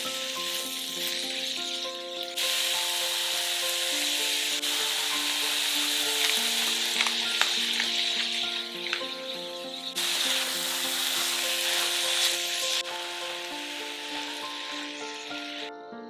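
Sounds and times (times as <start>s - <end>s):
onions sizzling in oil: 0.0s - 15.7s
pepper mill grinding: 4.5s - 9.2s.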